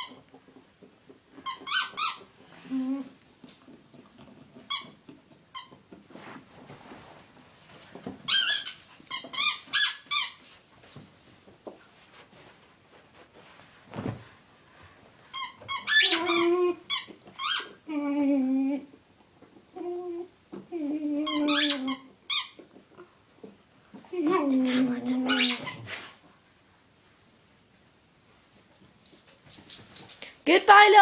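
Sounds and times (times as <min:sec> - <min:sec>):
squeaky dog toy squeaking: 0:01.4 - 0:02.3, 0:08.3 - 0:10.4, 0:15.3 - 0:17.8, 0:21.2 - 0:22.6, 0:25.2 - 0:25.9
dog woofing: 0:15.8 - 0:18.9.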